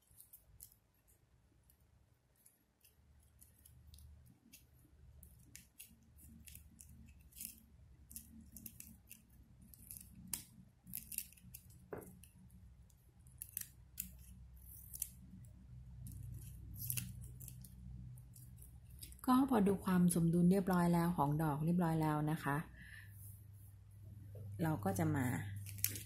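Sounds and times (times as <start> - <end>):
scissors snipping ribbon: 2.8 - 12.4, 13.2 - 19.2, 25.5 - 26.0.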